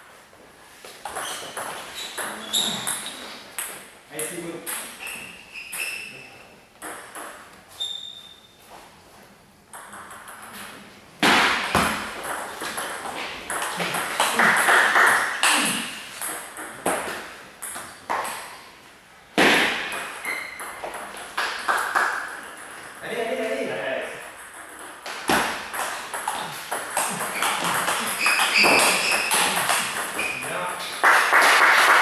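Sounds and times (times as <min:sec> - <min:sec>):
table tennis balls clicking: 0:01.0 - 0:03.8, 0:06.8 - 0:07.6, 0:09.7 - 0:10.6, 0:11.6 - 0:18.5, 0:19.9 - 0:23.0, 0:24.2 - 0:31.4.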